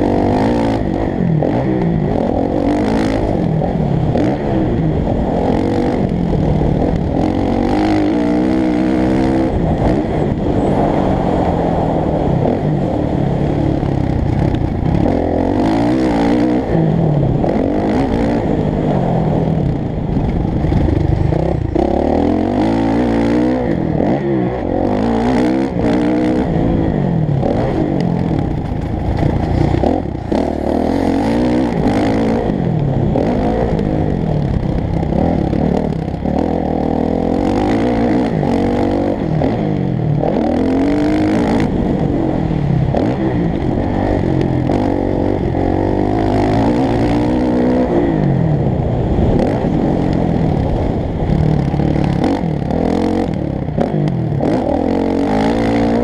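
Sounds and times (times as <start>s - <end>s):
motorcycle engine revving: 0.0s - 56.0s
wind noise: 0.0s - 56.0s.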